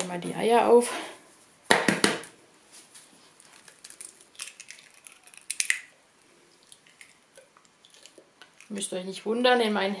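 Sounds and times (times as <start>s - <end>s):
eggshells cracking: 3.4s - 6.0s, 6.6s - 8.8s
wet squishes: 6.6s - 8.8s.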